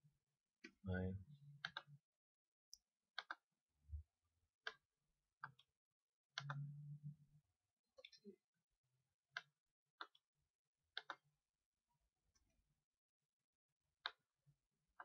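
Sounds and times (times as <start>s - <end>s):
mouse and keyboard clicks: 11.0s - 11.2s.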